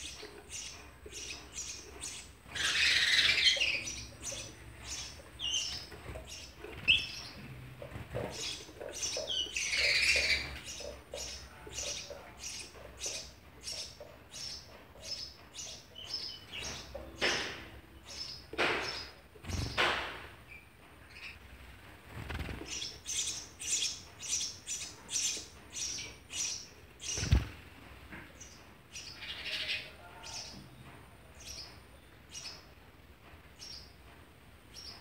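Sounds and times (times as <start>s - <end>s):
sparrows chirping: 0.0s - 27.6s, 28.2s - 32.8s, 33.6s - 34.0s, 34.7s - 35.0s
bird wingbeats: 22.0s - 22.9s, 27.1s - 27.7s.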